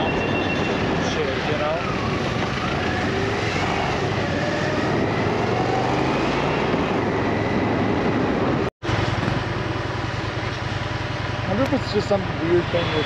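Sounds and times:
wind and road noise: 0.0 - 13.0
motorcycle engine running: 8.9 - 12.7.

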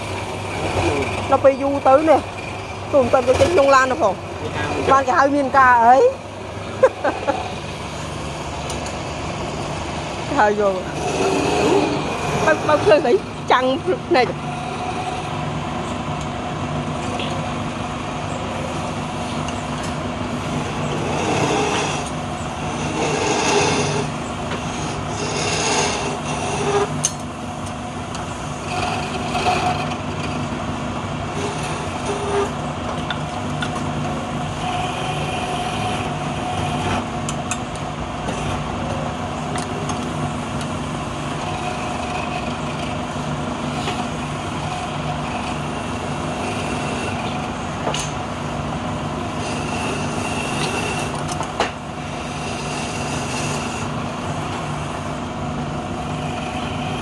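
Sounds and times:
scraper cutting spinning wood: 0.0 - 15.6, 19.0 - 27.1, 28.2 - 30.5, 31.2 - 32.6, 34.0 - 37.5, 39.7 - 57.0
lathe motor humming: 0.0 - 57.0.

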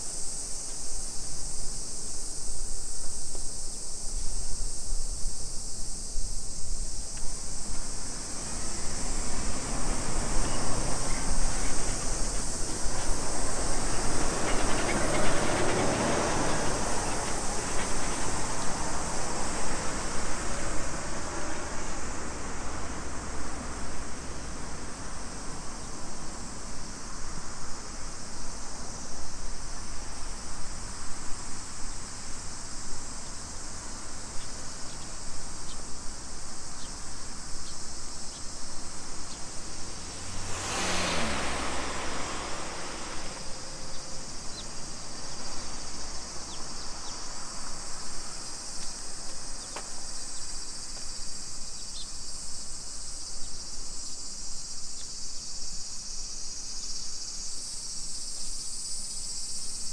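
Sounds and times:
cicadas chorus: 0.0 - 59.9
vehicle passing by: 7.5 - 25.7, 38.4 - 49.6.

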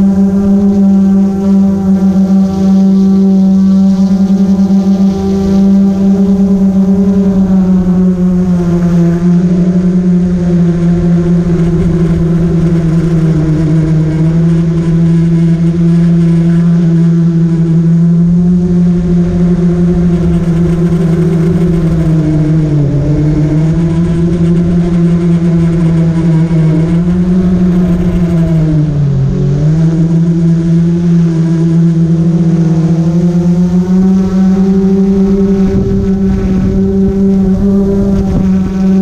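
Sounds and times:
drone motors and propellers humming: 0.0 - 39.0.

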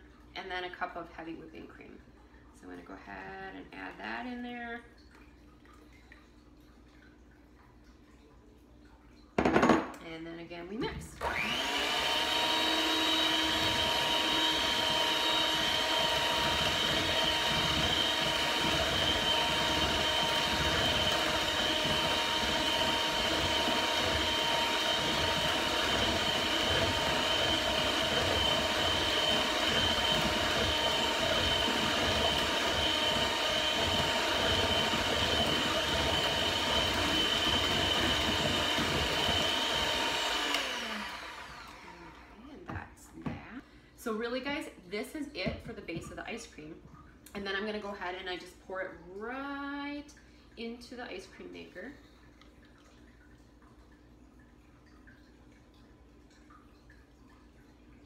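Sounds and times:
electric hand mixer whining: 11.1 - 42.8.

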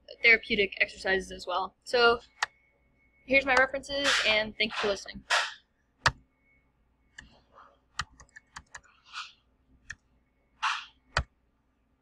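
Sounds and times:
keyboard and mouse clicks: 8.0 - 9.3, 10.6 - 11.3.

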